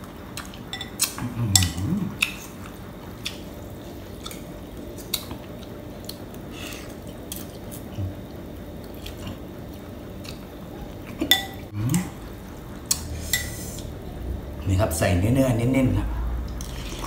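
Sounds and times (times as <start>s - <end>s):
cutlery clinking on ceramic bowl: 11.2s - 11.6s.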